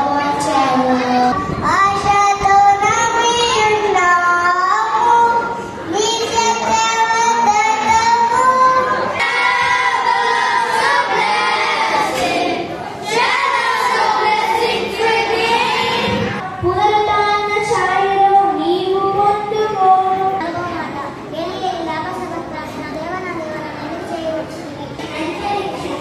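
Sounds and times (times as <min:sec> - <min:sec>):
children singing into a microphone: 0:00.0 - 0:20.7.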